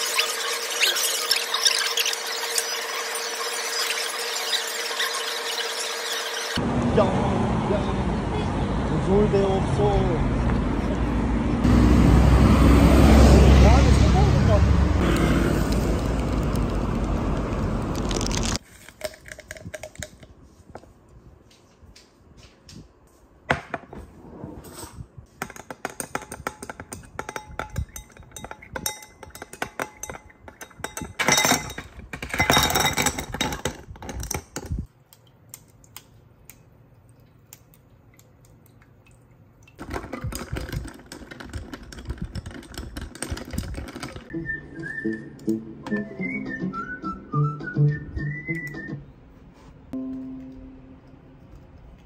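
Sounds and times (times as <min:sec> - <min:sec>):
street traffic noise: 0:06.6 - 0:18.6.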